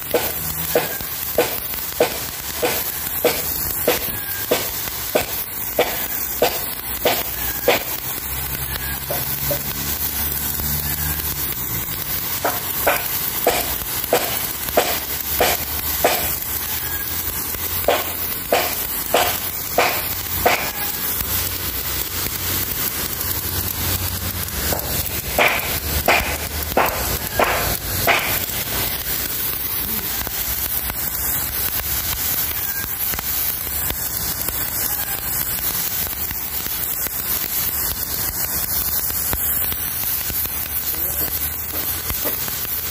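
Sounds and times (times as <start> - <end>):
garden hose water jet hissing: 0.0 - 42.9.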